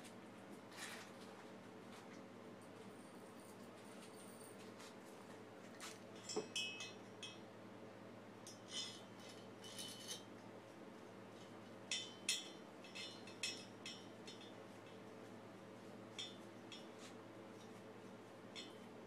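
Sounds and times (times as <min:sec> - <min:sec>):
faint steady hum: 0:00.0 - 0:19.0
metal hardware clinking on metal: 0:06.2 - 0:07.4, 0:11.9 - 0:14.6.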